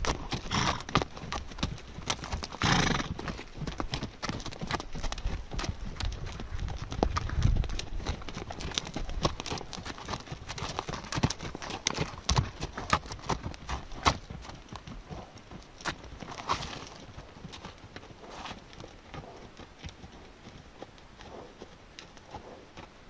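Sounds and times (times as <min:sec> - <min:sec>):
hooves on dry ground: 0:00.0 - 0:23.0.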